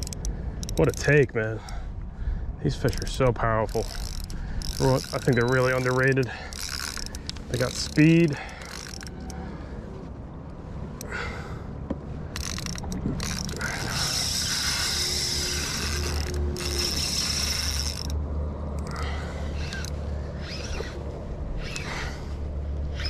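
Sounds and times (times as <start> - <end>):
fishing reel drag buzzing: 0.0 - 1.7, 2.7 - 9.6, 12.3 - 18.2, 18.8 - 23.0.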